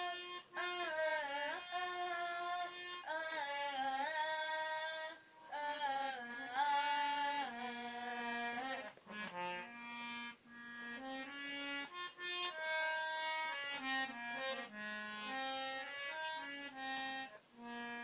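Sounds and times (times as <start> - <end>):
boy singing: 0.0 - 9.6
harmonium chords: 0.0 - 18.0.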